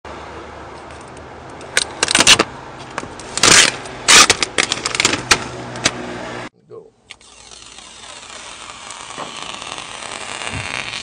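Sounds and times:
plastic film crinkling: 0:07.2 - 0:11.0.

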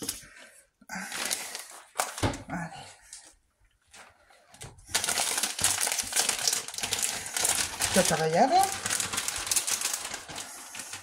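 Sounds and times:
plastic bag crinkling: 0:01.0 - 0:02.3, 0:03.9 - 0:11.0.

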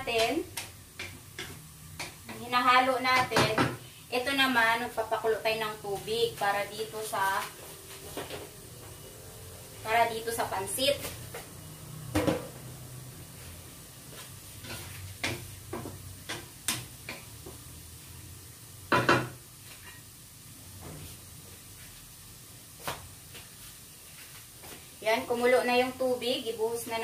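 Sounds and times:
low steady hum: 0:00.0 - 0:14.8.

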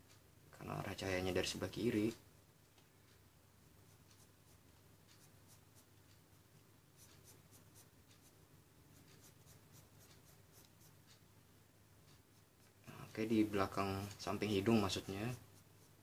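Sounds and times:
marker scratching on paper: 0:03.8 - 0:06.1, 0:06.9 - 0:11.2, 0:14.4 - 0:16.0.

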